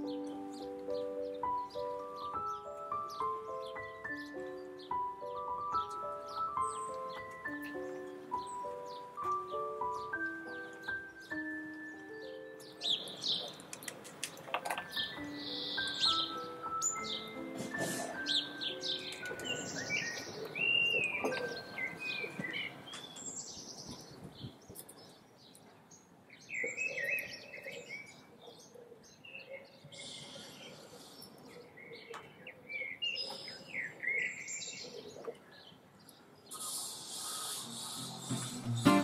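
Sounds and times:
songbirds chirping and whistling: 0.0s - 39.0s
faint clicks: 13.5s - 15.0s.

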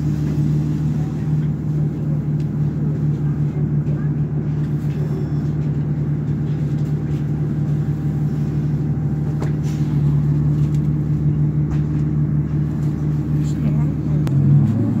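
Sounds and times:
diesel bus engine idling: 0.0s - 15.0s.

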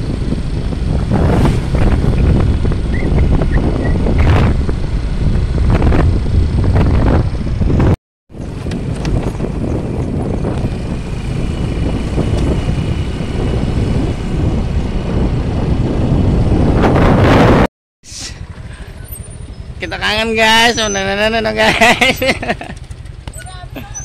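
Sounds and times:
motorcycle engine running: 0.0s - 17.1s, 21.3s - 24.0s
wind rushing over microphone: 0.0s - 17.7s.

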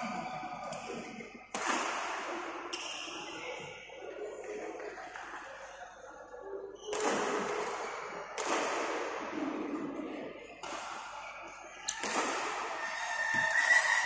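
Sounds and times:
rackets hitting a shuttlecock: 1.5s - 3.3s, 6.9s - 9.7s, 10.6s - 13.7s.

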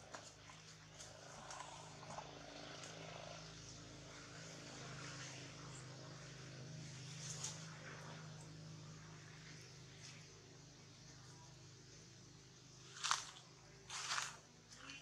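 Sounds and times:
faint low mechanical drone: 0.0s - 15.0s.

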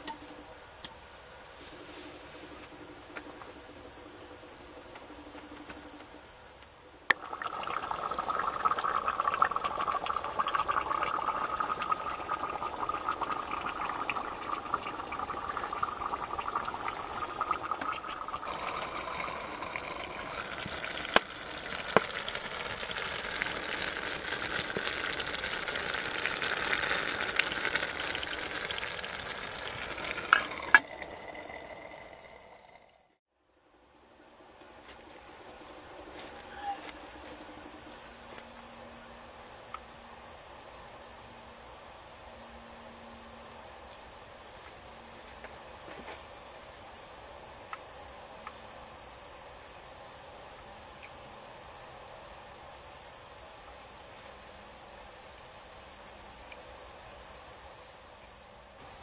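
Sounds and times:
water hissing and bubbling: 7.2s - 32.9s.

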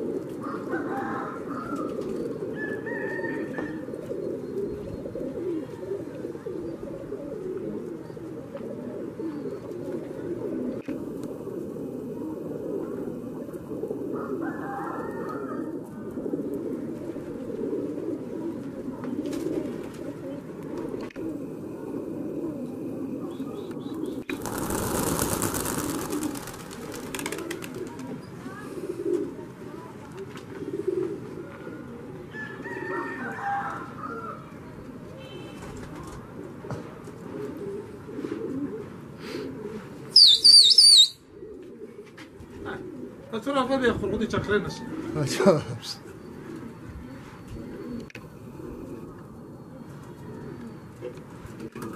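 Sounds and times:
pigeons cooing: 0.0s - 51.9s
high wavering whistle: 40.2s - 41.2s.

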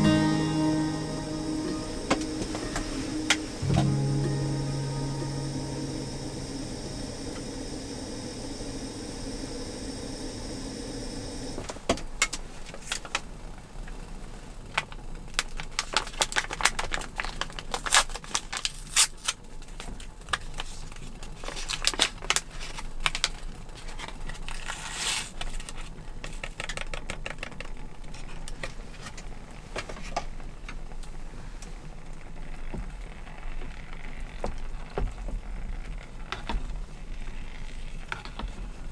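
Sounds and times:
plastic packet tearing: 15.4s - 19.4s
plastic packet crinkling: 15.4s - 20.7s.

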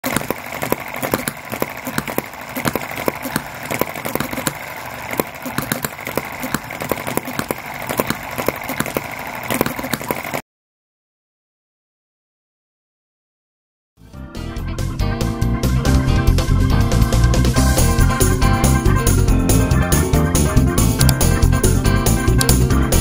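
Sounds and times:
engine pops and clicks: 0.0s - 10.4s, 20.8s - 23.0s
steady mechanical whir: 0.0s - 10.4s, 17.3s - 23.0s.

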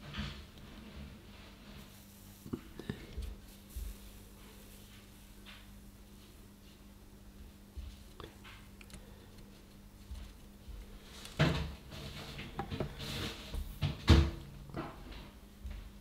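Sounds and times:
steady low hum: 0.0s - 16.0s
knocks and clatters on a workbench: 11.4s - 15.2s.

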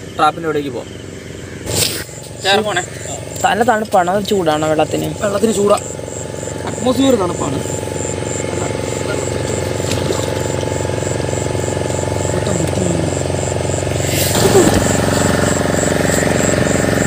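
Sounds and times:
steady motor hum: 0.0s - 17.0s
water splashing and churning: 7.8s - 13.1s.

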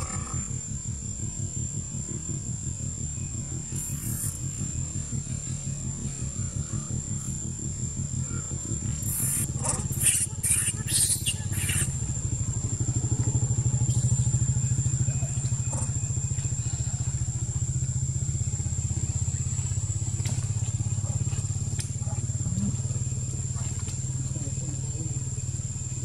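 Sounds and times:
small engine running: 0.0s - 26.0s
monkeys squealing: 3.7s - 4.6s, 8.2s - 12.9s.

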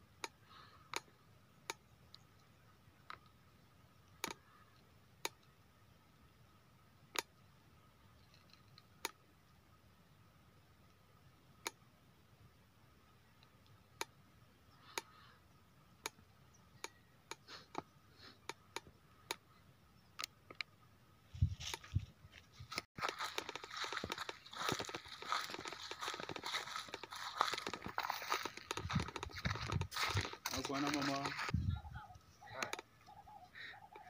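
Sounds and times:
footsteps on dry grass and grit: 21.3s - 31.8s.

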